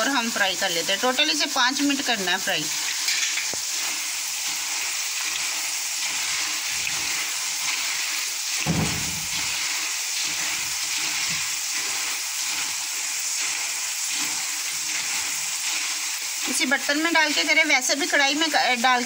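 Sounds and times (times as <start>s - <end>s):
lentils sizzling in hot oil: 0.0s - 19.0s
dull thump: 8.6s - 9.5s.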